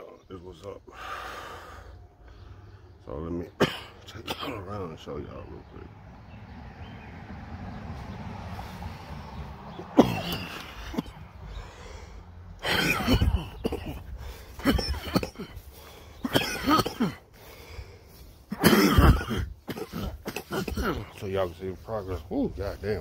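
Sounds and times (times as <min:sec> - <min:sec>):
man coughing and clearing throat: 0:03.5 - 0:05.8, 0:09.7 - 0:11.3, 0:12.6 - 0:17.3, 0:18.5 - 0:21.4.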